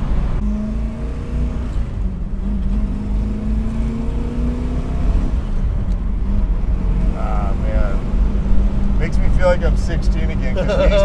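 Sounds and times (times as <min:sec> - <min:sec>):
car engine cruising: 0:00.0 - 0:11.0.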